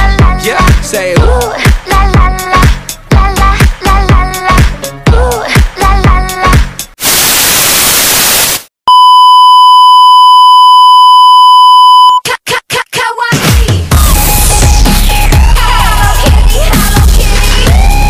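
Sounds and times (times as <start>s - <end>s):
dance music: 0.0s - 6.8s, 13.3s - 18.0s
tv static hiss: 7.0s - 8.7s
test-tone beep: 8.9s - 12.2s.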